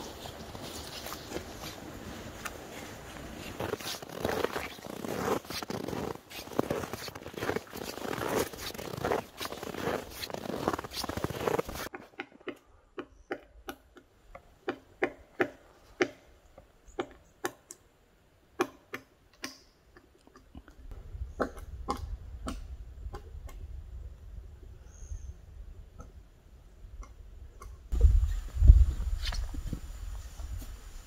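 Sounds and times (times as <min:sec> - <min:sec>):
boots crunching in snow: 0:00.0 - 0:11.9.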